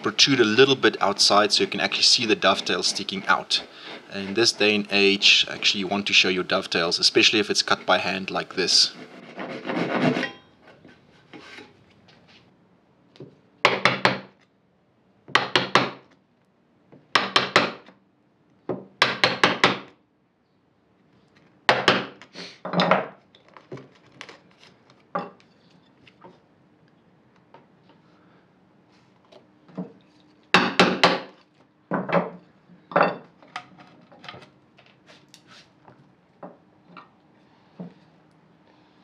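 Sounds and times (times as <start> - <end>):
hand saw cutting wood: 0.0 - 6.4, 7.3 - 10.3.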